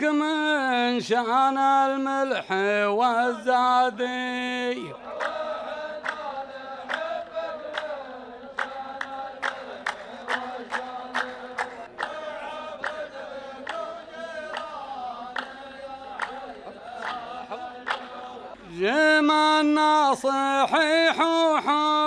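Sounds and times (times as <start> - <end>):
men chanting in unison: 0.0 - 22.0
handclaps: 5.1 - 18.3.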